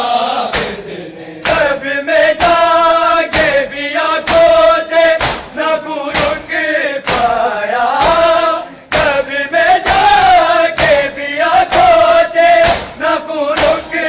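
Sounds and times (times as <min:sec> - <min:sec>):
men chanting in unison: 0:00.0 - 0:14.0
hands slapping chests: 0:00.5 - 0:00.8, 0:01.4 - 0:01.7, 0:02.3 - 0:03.6, 0:04.2 - 0:07.4, 0:08.0 - 0:14.0.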